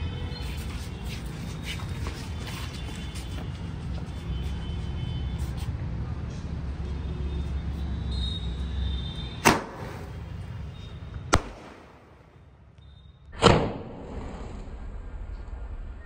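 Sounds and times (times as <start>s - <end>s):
firework shots blasting: 9.4s - 10.3s, 11.3s - 12.4s, 13.3s - 14.8s.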